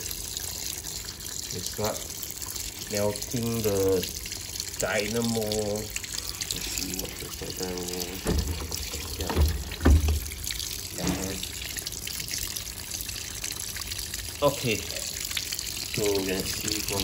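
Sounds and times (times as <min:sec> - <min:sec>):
water pouring into washing machine: 0:00.0 - 0:17.0
dull thumps: 0:08.2 - 0:11.3.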